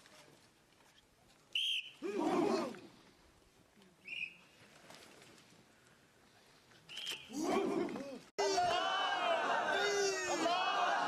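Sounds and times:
whistle blast: 0:01.6 - 0:02.0, 0:04.0 - 0:04.5
soldiers shouting together: 0:07.3 - 0:11.0.

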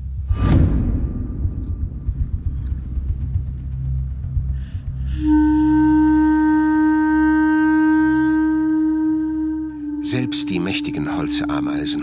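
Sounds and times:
low rumbling drone: 0:00.0 - 0:12.0
loud long held note: 0:05.0 - 0:12.0.

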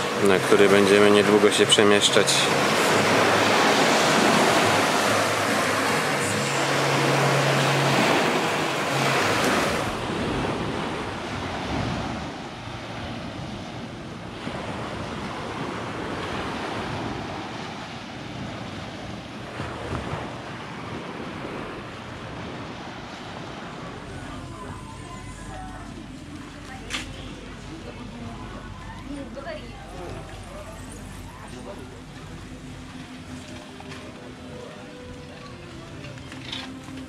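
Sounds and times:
small waves washing onto beach: 0:00.0 - 0:37.0.

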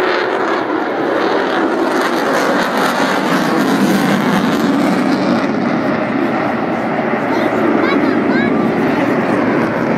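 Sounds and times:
jet engines roaring flyby: 0:00.0 - 0:09.9.

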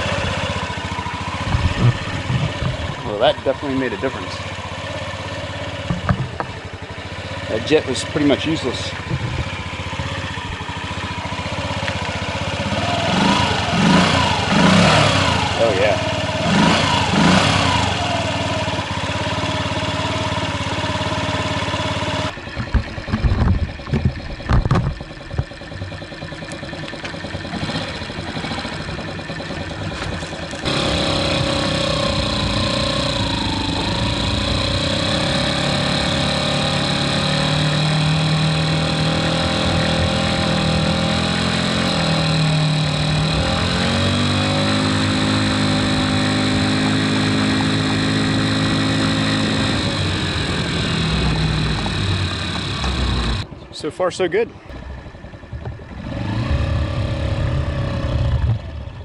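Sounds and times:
scooter engine running: 0:00.0 - 0:53.6, 0:54.6 - 0:59.0
loud thumps and knocks: 0:01.5 - 0:03.0, 0:05.8 - 0:06.6, 0:22.6 - 0:26.0.

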